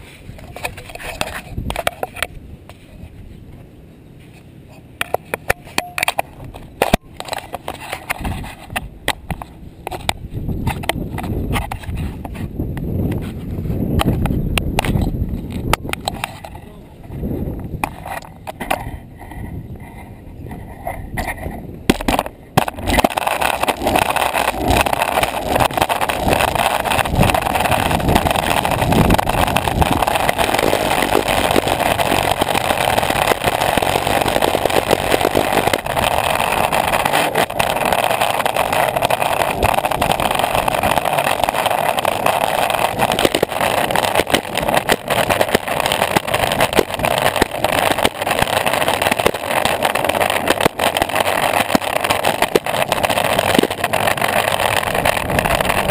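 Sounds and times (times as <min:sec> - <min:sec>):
longboard wheels rolling on pavement: 0:00.0 - 0:55.9
small clicks and knocks: 0:04.3 - 0:13.3, 0:14.0 - 0:16.6.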